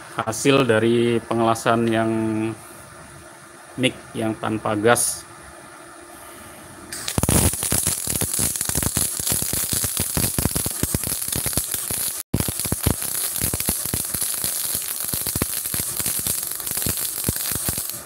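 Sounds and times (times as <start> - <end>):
welding arc crackling: 6.9 - 18.0.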